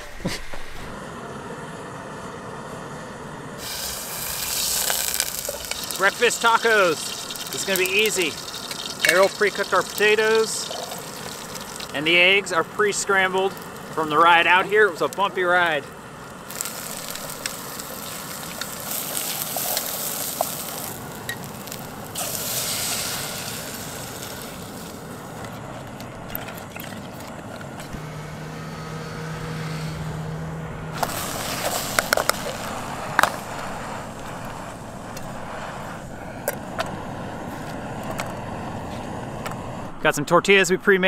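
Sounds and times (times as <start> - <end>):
low steady hum: 0.0 - 40.3
food sizzling in a pan: 3.6 - 12.2, 16.4 - 25.5, 31.0 - 35.1.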